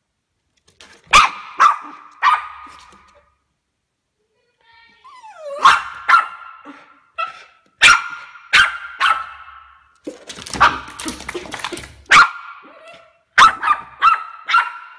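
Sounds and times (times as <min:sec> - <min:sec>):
dog barking: 0:01.1 - 0:03.0, 0:05.5 - 0:09.8, 0:12.1 - 0:14.9
dog whining: 0:05.0 - 0:05.9.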